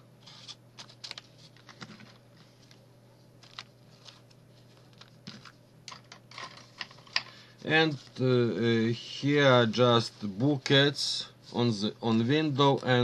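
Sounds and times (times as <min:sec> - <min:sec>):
paper rustling and clicks: 0:00.2 - 0:02.8, 0:03.4 - 0:07.0.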